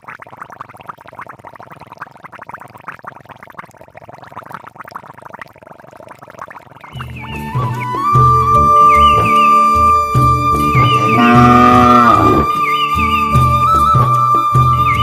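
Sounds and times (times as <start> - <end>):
water trickling and splashing: 0.0 - 8.2, 9.5 - 15.0.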